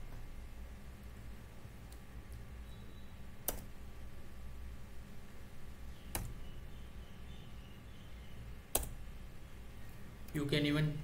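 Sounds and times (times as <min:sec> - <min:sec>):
faint low hum: 0:00.0 - 0:11.0
computer key clicks: 0:03.4 - 0:03.7, 0:06.1 - 0:06.4, 0:08.7 - 0:09.0.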